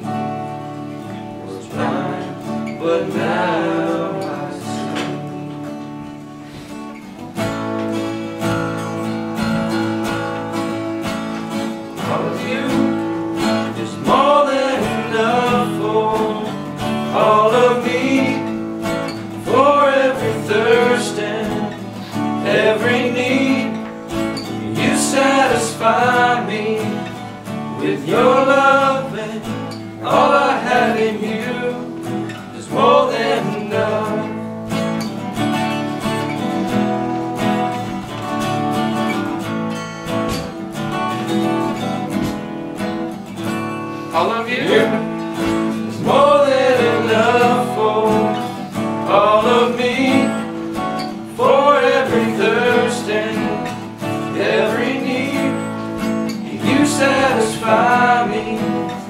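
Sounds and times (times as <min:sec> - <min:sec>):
acoustic guitars strumming: 0:00.0 - 0:59.0
man singing: 0:01.0 - 0:05.7, 0:11.9 - 0:34.5, 0:44.1 - 0:59.0.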